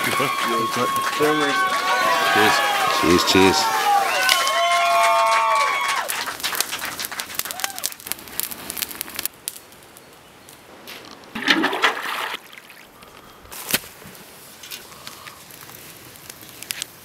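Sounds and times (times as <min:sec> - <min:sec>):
fire crackling: 0:00.0 - 0:17.0
water gurgling into pot: 0:11.4 - 0:12.8.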